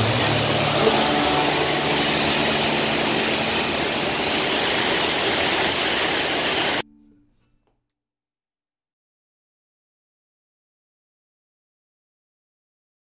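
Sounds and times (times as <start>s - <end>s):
waterfall roar: 0.0s - 6.8s.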